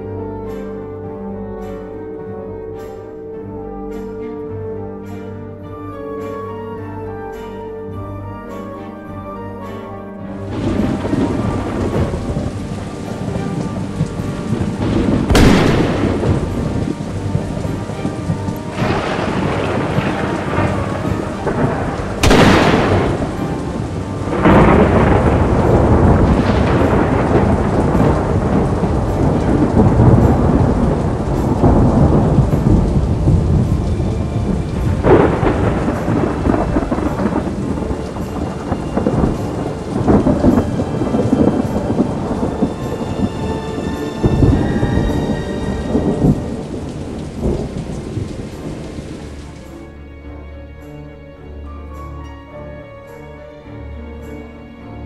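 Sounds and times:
steady rain: 0:00.0 - 0:55.0
rolling thunder: 0:10.4 - 0:49.9
sharp thunder crack: 0:10.5 - 0:49.6.

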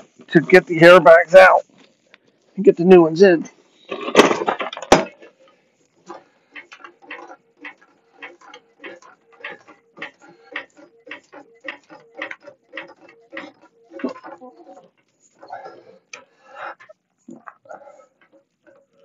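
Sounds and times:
floor jack pumping clicks: 0:06.6 - 0:14.3.

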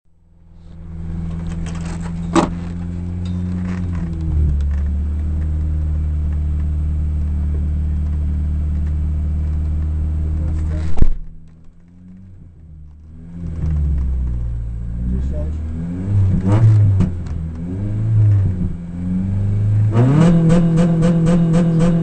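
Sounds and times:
car engine idling: 0:00.1 - 0:22.0.

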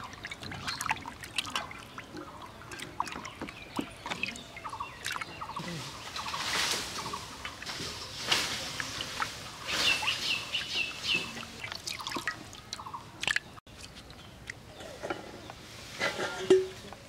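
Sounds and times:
small splashes and clicks: 0:00.0 - 0:05.4, 0:11.1 - 0:14.6
water sloshing and dripping: 0:00.0 - 0:15.2
bird chirping: 0:09.6 - 0:12.2.

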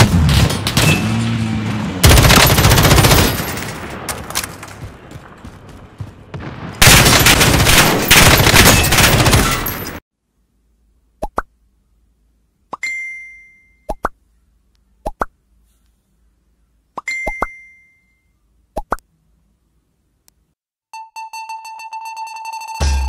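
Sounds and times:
rapid automatic gunfire: 0:02.0 - 0:03.6, 0:06.8 - 0:09.7.

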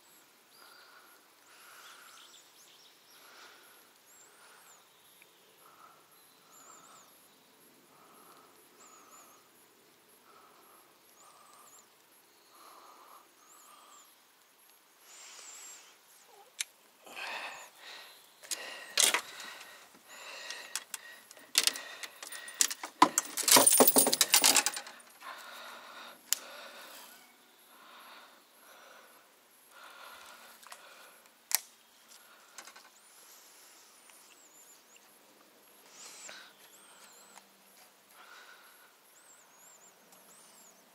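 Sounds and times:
metallic clicks and rattles: 0:18.5 - 0:19.4, 0:20.5 - 0:25.1.

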